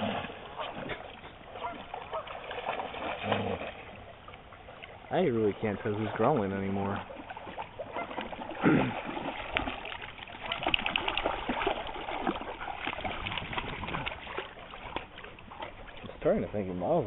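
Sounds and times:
dogs splashing through water: 0:00.0 - 0:17.0
dog growling low: 0:03.2 - 0:03.8.

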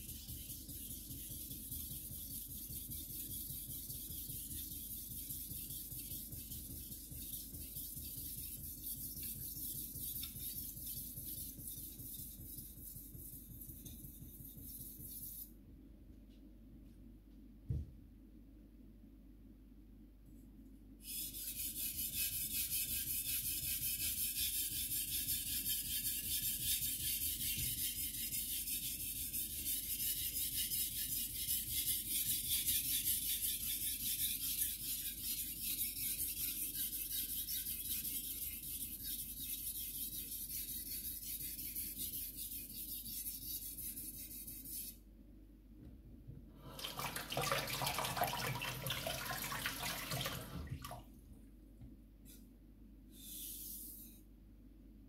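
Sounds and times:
tap running water: 0:46.8 - 0:51.0.

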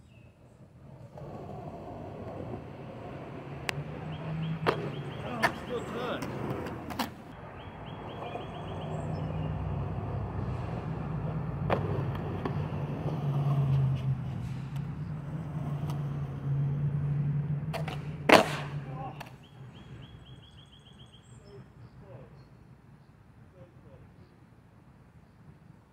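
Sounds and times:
skateboard wheels rolling on concrete: 0:00.0 - 0:20.6
skateboard clack: 0:00.8 - 0:07.3, 0:11.2 - 0:14.1, 0:14.7 - 0:16.3, 0:17.7 - 0:19.4.

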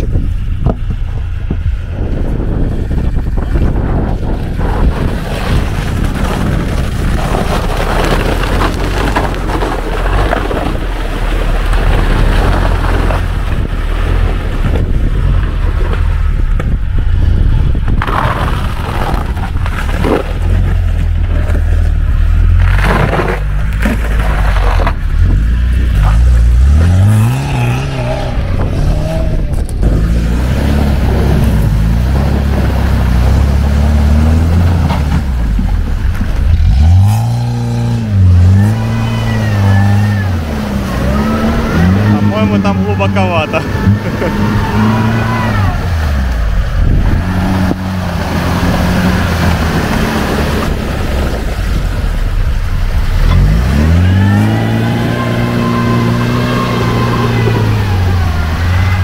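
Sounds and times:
engine running under load: 0:00.0 - 0:59.0
water splashing: 0:38.4 - 0:59.0.

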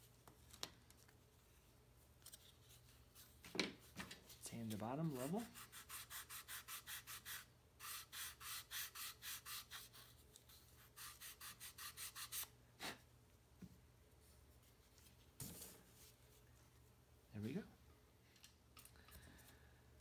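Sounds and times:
sanding block rubbing on wood: 0:05.1 - 0:10.0, 0:11.0 - 0:12.5.

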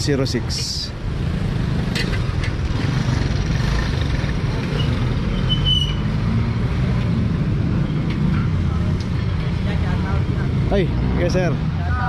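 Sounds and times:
idling engines: 0:00.0 - 0:12.0
street traffic rumble: 0:00.0 - 0:12.0.

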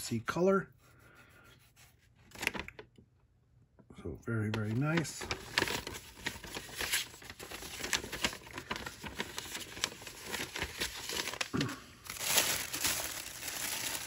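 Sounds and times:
plastic packaging crinkling: 0:02.3 - 0:02.9, 0:04.6 - 0:14.0.

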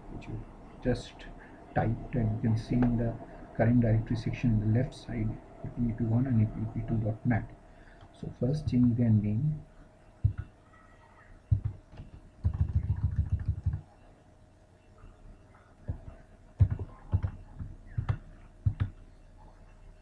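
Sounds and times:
keyboard keystrokes: 0:11.5 - 0:13.8, 0:15.9 - 0:19.0.

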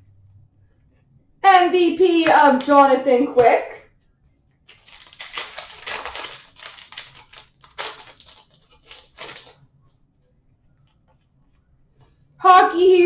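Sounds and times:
plastic wrapper crinkling and tearing: 0:04.7 - 0:09.6.

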